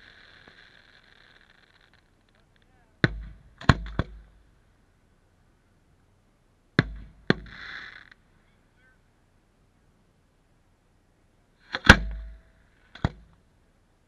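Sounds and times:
firework shells booming: 0.0s - 4.5s, 6.8s - 8.2s, 11.6s - 13.3s
short hissing: 7.4s - 8.5s.

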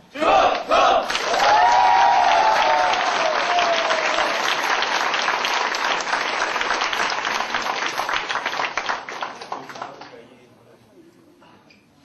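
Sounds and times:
group shouting: 0.2s - 4.4s
audience applause: 1.1s - 10.2s.

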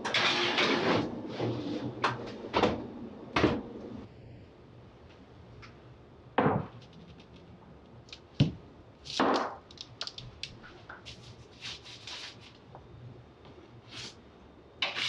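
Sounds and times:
baking sheet sliding: 11.1s - 12.6s.

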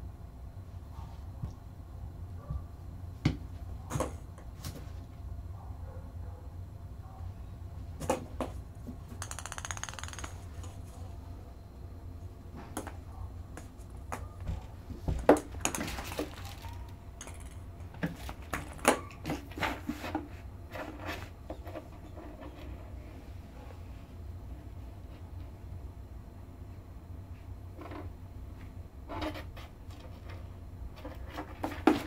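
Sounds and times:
steady low hum: 0.0s - 32.0s
ping pong ball bouncing: 9.1s - 10.7s, 17.2s - 17.7s.

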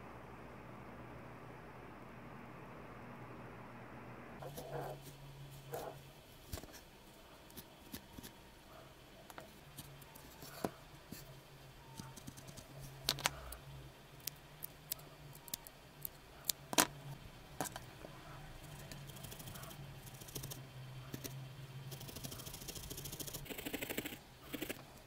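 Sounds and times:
faint low hum: 0.0s - 25.0s
felting needle clicks and crunches: 14.2s - 16.9s.

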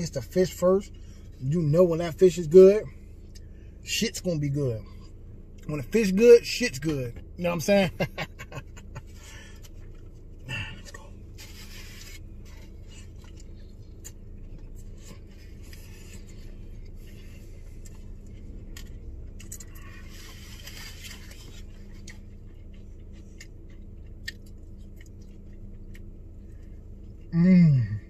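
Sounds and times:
steady low hum: 0.0s - 28.0s
person chewing food: 8.2s - 27.9s.

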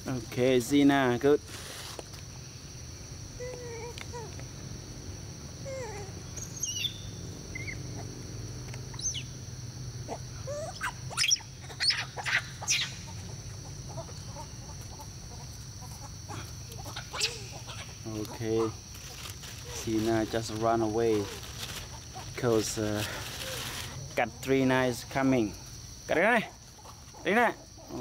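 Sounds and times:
insect drone: 0.0s - 28.0s
monkeys calling: 5.7s - 8.1s, 10.1s - 18.8s.

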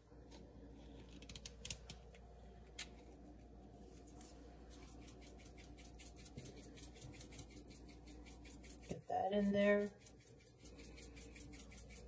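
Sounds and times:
pepper mill grinding: 9.7s - 12.0s.

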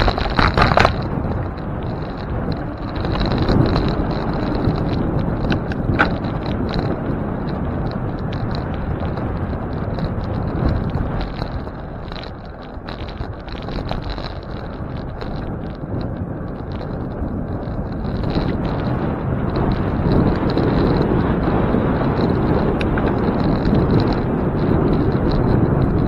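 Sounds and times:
bicycle tyre and road noise: 0.0s - 26.0s
wind rushing over microphone: 0.0s - 26.0s.

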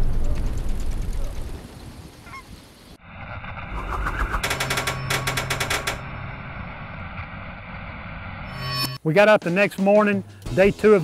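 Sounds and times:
rapid rattling burst: 3.8s - 6.3s.

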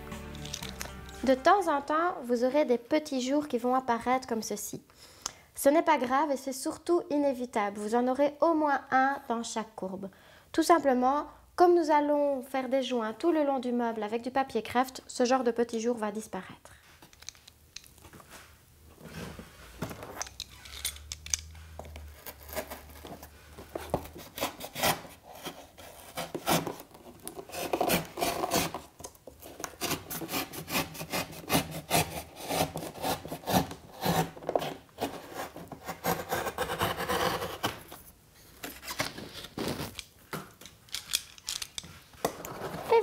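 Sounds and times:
cardboard rubbing and scraping: 22.1s - 38.0s, 42.4s - 43.0s.

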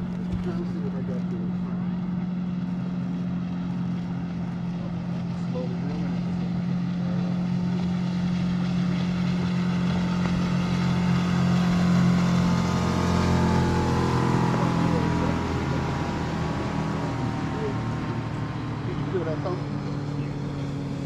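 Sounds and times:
motorboat engine passing: 0.0s - 21.0s.

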